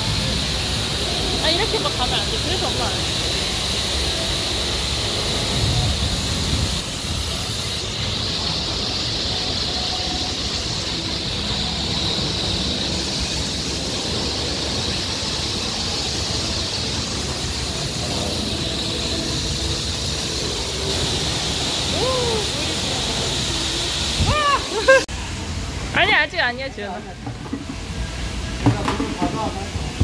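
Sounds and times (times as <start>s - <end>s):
high-pressure water spray hissing: 0.0s - 30.0s.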